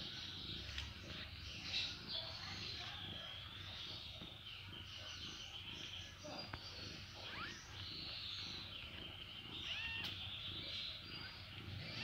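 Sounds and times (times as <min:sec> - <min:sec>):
kittens mewing: 0:09.6 - 0:10.2.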